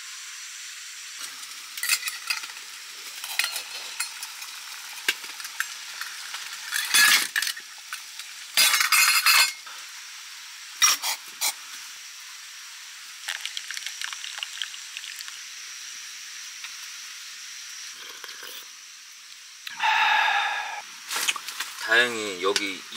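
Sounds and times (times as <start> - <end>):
hot water poured into mug: 13.2 - 15.5.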